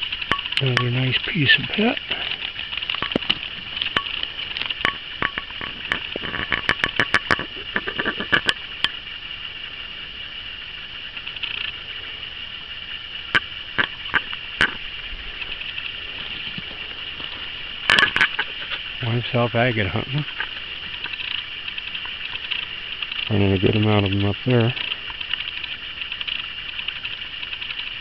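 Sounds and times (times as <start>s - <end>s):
stones clicking and clattering: 2.2s - 9.0s, 16.2s - 18.8s.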